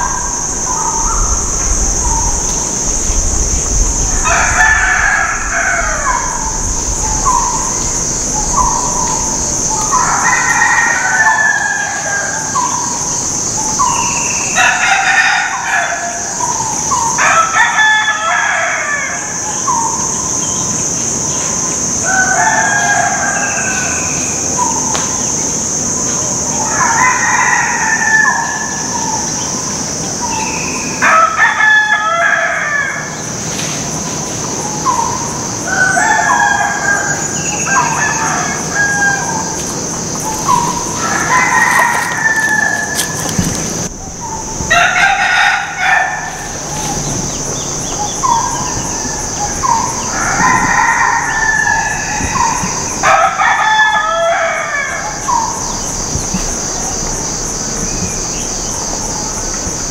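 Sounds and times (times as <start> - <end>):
bird calls: 0.0 - 59.9
rooster crowing: 4.0 - 12.8, 13.8 - 16.4, 17.2 - 19.4, 22.0 - 24.7, 26.6 - 28.9, 31.0 - 33.2, 35.6 - 59.8.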